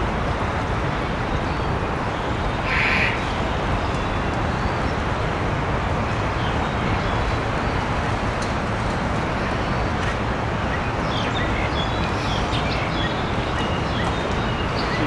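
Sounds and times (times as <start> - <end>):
city traffic hum: 0.0 - 15.0
birds chirping: 10.6 - 15.0.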